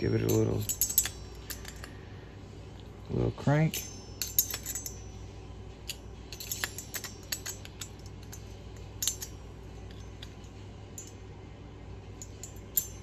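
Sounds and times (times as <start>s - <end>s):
small metal tools clinking: 0.0s - 2.1s, 3.4s - 5.2s, 5.8s - 11.2s, 12.2s - 13.0s.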